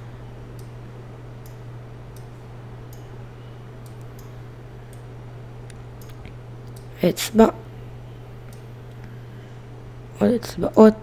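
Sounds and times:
low electrical hum: 0:00.0 - 0:11.0
computer mouse clicks: 0:02.2 - 0:03.1, 0:03.8 - 0:05.1.

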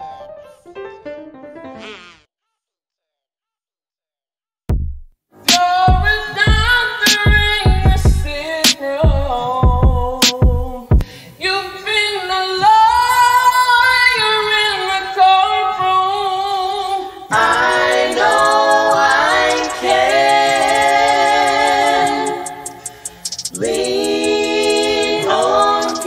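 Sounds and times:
wordless sung vocals: 0:05.4 - 0:26.0.

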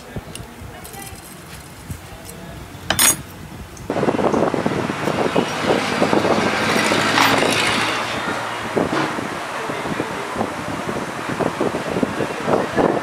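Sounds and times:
road traffic: 0:00.0 - 0:13.0
sharp metallic clink: 0:02.9 - 0:03.3
rushing noise with clicks and rattles: 0:03.8 - 0:13.0.

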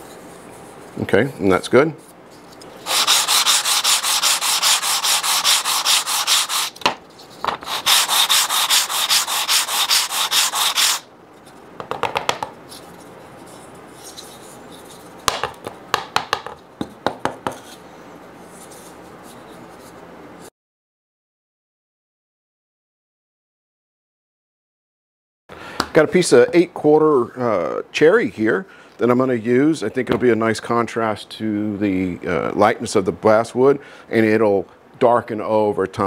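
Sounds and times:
wood rubbed on sandpaper: 0:02.8 - 0:06.8, 0:07.6 - 0:11.1.

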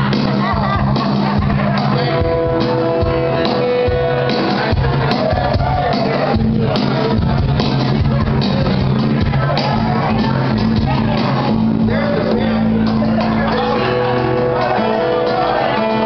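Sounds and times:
acoustic guitar: 0:00.0 - 0:16.0
cajon drumming: 0:00.0 - 0:16.0
electric bass: 0:00.0 - 0:16.0.

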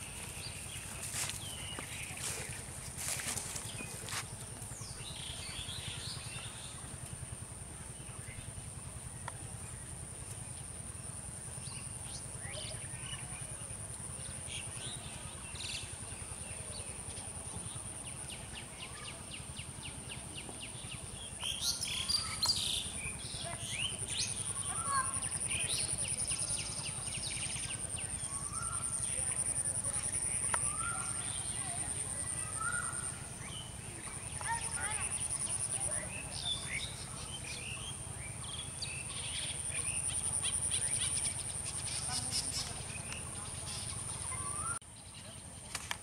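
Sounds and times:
birds chirping: 0:00.0 - 0:06.9, 0:20.0 - 0:46.0.

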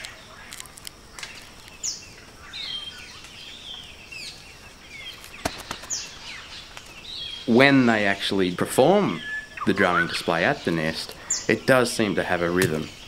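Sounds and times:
birds calling: 0:00.0 - 0:13.0.

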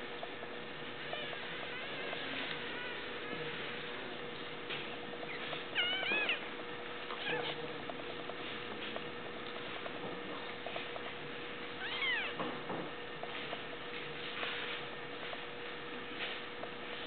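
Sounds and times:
faint steady hum: 0:00.0 - 0:17.0
kitten squealing: 0:05.3 - 0:06.5, 0:07.1 - 0:07.6, 0:11.8 - 0:12.4.

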